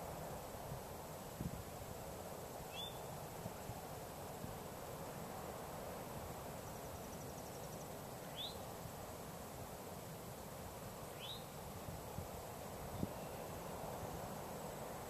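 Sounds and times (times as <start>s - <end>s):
faint rapid insect ticking: 0.0s - 15.0s
rising bird chirps: 2.7s - 3.1s, 11.2s - 11.5s.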